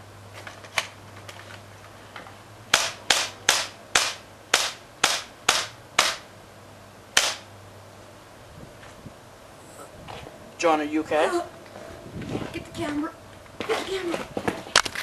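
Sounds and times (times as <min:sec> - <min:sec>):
sharp gunshot-like bangs: 0:07.2 - 0:07.5.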